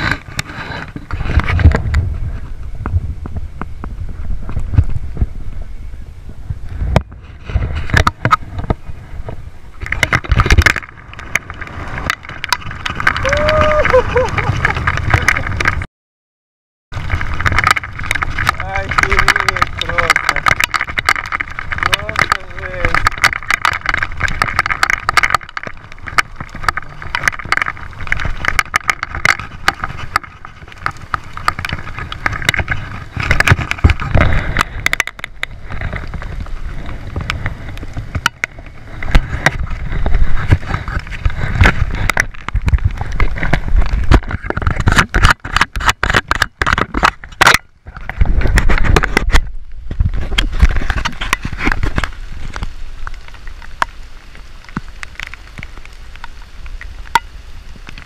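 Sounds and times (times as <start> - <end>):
wind gusts rumbling: 0.0 - 15.9, 16.9 - 58.0
heavy rain: 8.0 - 15.9, 17.0 - 45.6, 49.1 - 58.0
raindrops striking camera: 9.7 - 15.9, 16.9 - 58.0.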